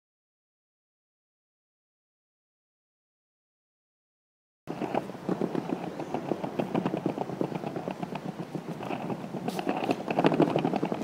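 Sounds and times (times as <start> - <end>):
skateboard wheels rumbling on tiles: 4.7 - 11.0
wheels clicking over tile joints: 4.7 - 11.0.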